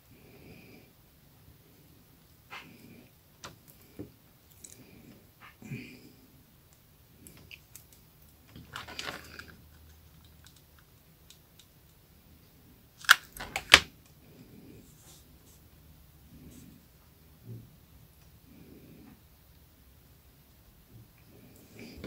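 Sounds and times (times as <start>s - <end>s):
newspaper rustling: 8.5s - 9.5s.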